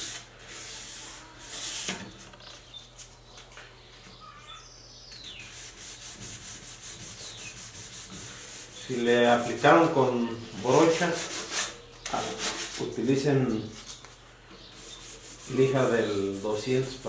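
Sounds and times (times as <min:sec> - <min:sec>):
sandpaper rubbing on wood: 0:05.4 - 0:13.0, 0:14.8 - 0:17.0.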